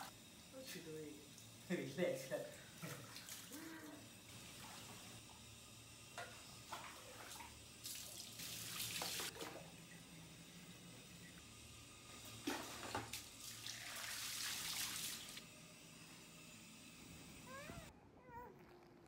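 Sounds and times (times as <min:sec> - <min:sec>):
water pouring from jug: 0:12.4 - 0:15.4.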